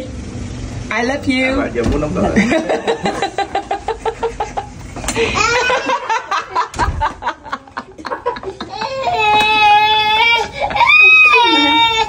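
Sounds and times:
young child laughing: 3.2s - 9.6s, 10.5s - 12.0s
child squealing: 5.2s - 6.0s, 8.8s - 12.0s.

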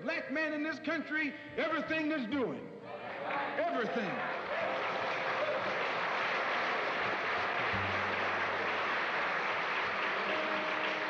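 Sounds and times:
crowd applauding: 3.6s - 11.0s.

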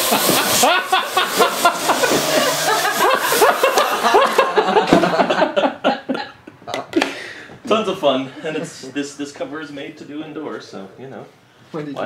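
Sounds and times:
drone propellers whirring: 0.0s - 4.1s
people laughing: 0.0s - 7.2s.

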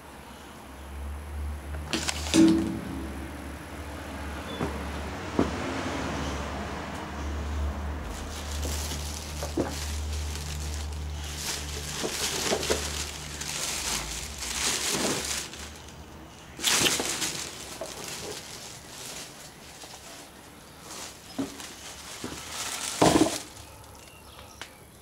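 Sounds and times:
low vehicle engine hum: 0.0s - 25.0s
puppy rustling in ivy: 7.4s - 24.6s.

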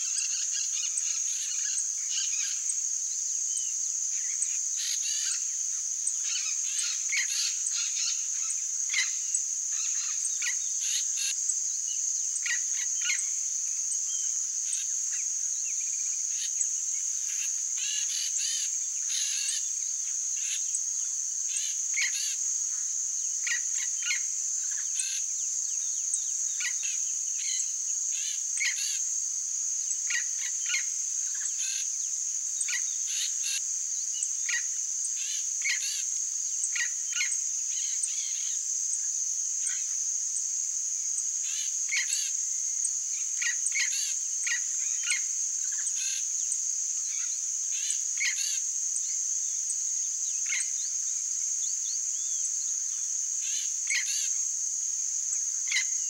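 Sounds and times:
high-pitched insect chorus: 0.0s - 56.0s.

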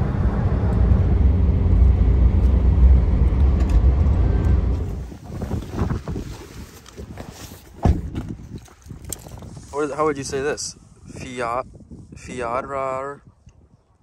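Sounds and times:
car engine working hard: 0.0s - 5.2s
road and wind noise: 0.0s - 14.0s.

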